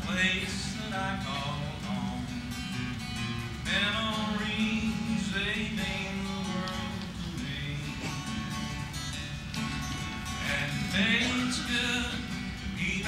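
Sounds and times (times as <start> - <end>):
man singing: 0.0 - 2.5, 3.6 - 8.6, 10.3 - 13.0
strummed acoustic guitar: 0.0 - 13.0.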